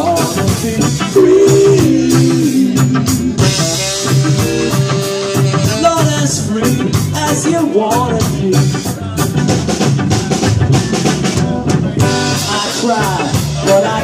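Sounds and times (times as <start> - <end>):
bass: 0.0 - 14.0
drums keeping a steady beat: 0.0 - 14.0
guitar: 0.0 - 14.0
horn melody: 1.2 - 5.9.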